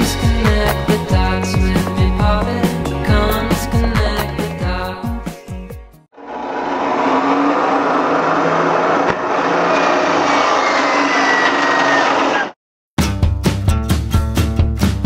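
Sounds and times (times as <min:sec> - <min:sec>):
miter saw cutting: 0:06.2 - 0:12.6.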